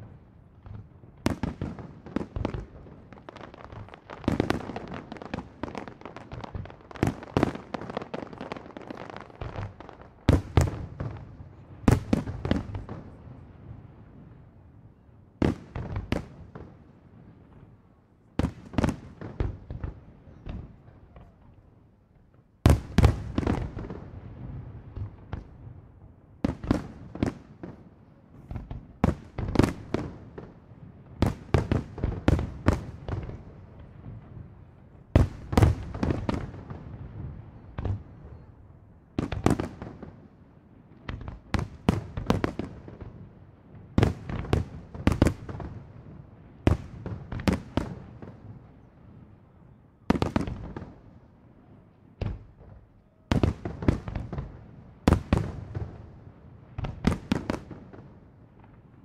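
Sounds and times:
fireworks bursting: 0.0 - 13.4, 35.2 - 38.5.

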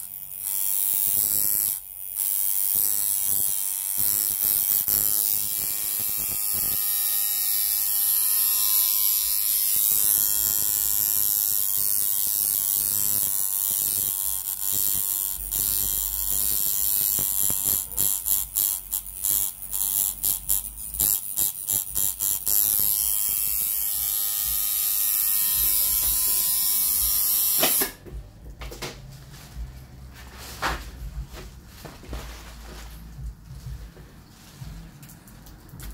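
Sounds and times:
tattoo machine buzzing: 0.0 - 28.7.

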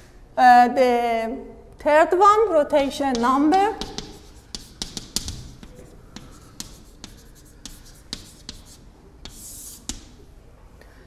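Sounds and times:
chalk tapping and scratching: 2.8 - 10.2
chalk scraping stroke: 3.6 - 10.2.

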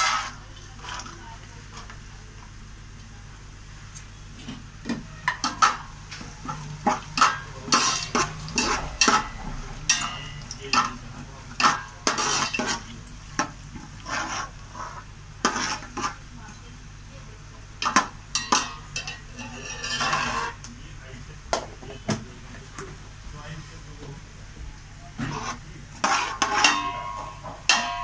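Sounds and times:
coconut frying in ghee: 0.0 - 28.0
spoon scraping and knocking a pot: 4.5 - 11.0, 11.6 - 16.2, 17.8 - 20.6, 25.2 - 28.0.

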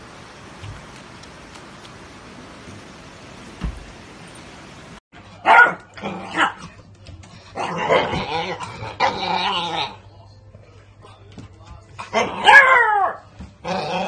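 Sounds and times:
puppy barking and growling: 5.4 - 6.7, 7.6 - 10.0, 12.0 - 14.0.

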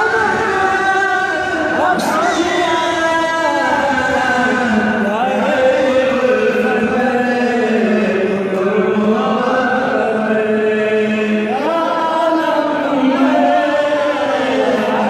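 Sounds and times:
man chanting devotional song: 0.0 - 15.0.

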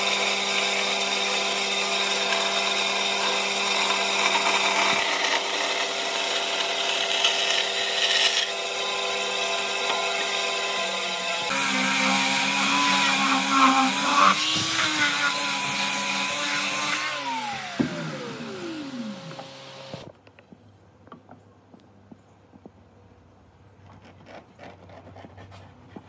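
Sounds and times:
power tool motor humming: 0.0 - 20.1.

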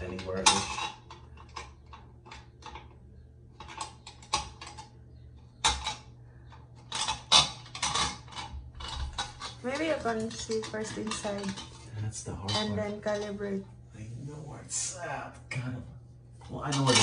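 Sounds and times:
metal plate and screws clicking on tile: 0.0 - 11.8.

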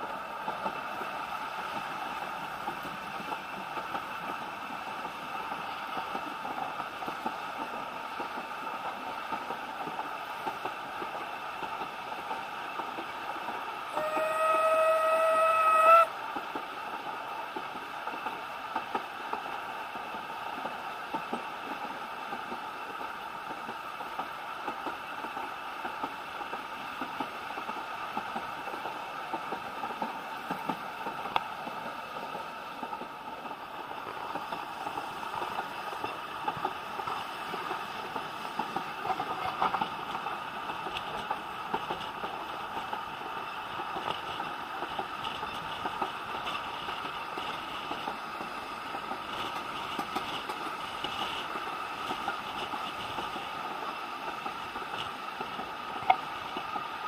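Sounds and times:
train rumble and rail clicks: 0.0 - 57.0
steam locomotive whistle: 13.9 - 16.2.

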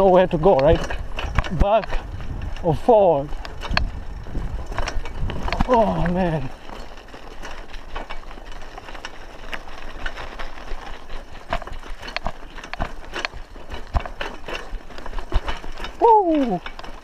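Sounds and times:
bike frame rattling and clicking: 0.0 - 17.0
tyres rumbling on dirt: 0.0 - 17.0.

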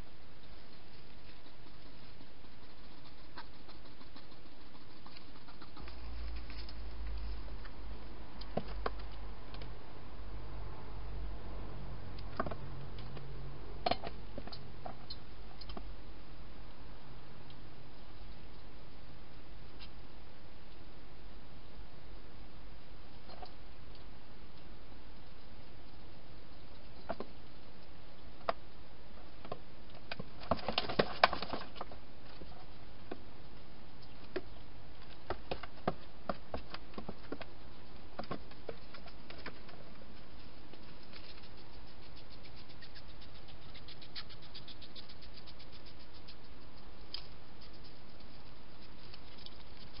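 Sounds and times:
hedgehog chewing and scraping plastic: 0.4 - 7.8, 30.2 - 32.8, 38.2 - 50.0.

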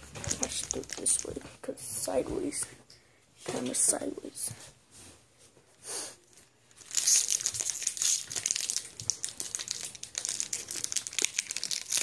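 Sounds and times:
foil wrapper crinkling: 0.2 - 1.4, 6.7 - 12.0.

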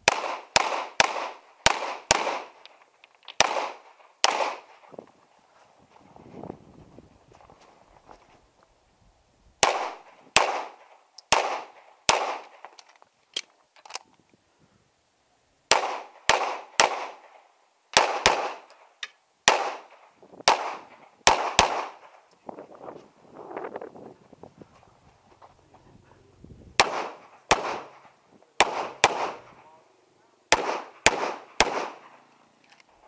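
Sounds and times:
pistol shots with echo: 0.0 - 2.6, 3.4 - 4.9, 9.6 - 12.6, 15.7 - 18.7, 19.4 - 22.2, 26.8 - 29.7, 30.5 - 32.2.

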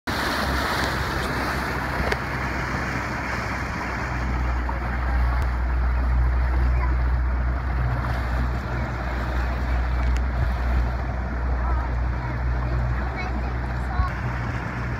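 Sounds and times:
rushing water: 0.0 - 14.9
outboard motor humming: 0.1 - 14.9.

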